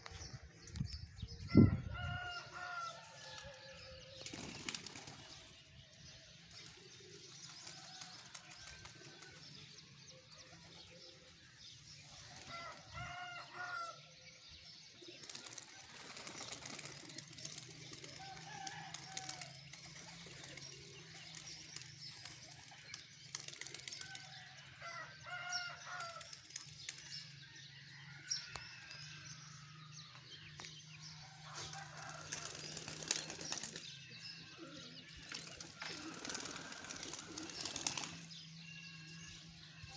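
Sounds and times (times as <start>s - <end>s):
pigeons flapping wings: 4.2s - 5.4s, 6.6s - 9.5s, 15.2s - 24.4s, 31.7s - 34.0s, 35.2s - 38.3s.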